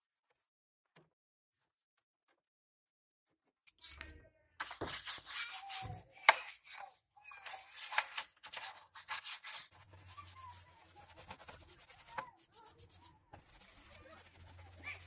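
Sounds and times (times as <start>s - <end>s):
paintbrush scrubbing plastic: 4.6s - 15.0s.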